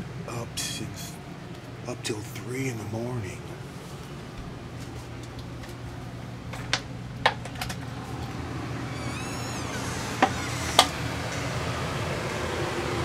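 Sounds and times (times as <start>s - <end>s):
steady low hum: 0.0s - 13.0s
wavering high squeak: 8.8s - 11.4s.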